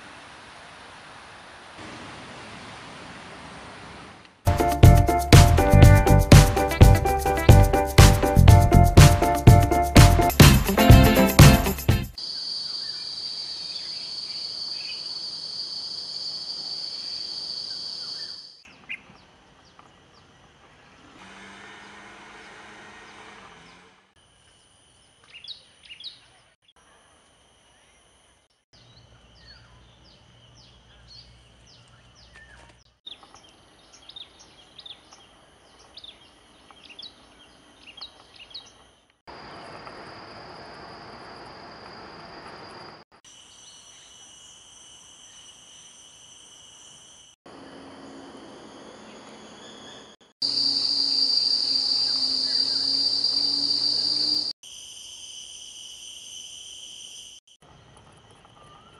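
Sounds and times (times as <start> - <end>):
high-pitched insect drone: 43.4 - 57.2.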